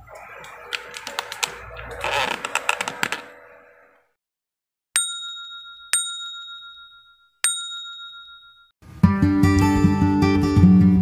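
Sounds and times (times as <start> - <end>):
notification bell dings: 5.0 - 8.7.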